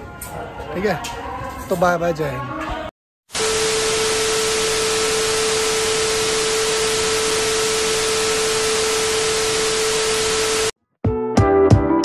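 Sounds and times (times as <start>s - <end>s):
static hiss: 3.3s - 10.7s
constant mid-pitched tone: 3.4s - 10.7s.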